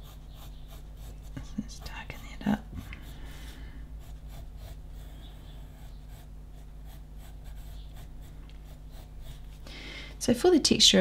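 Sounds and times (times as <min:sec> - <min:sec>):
pencil scratching on paper: 0:00.0 - 0:09.6
faint low hum: 0:00.0 - 0:11.0.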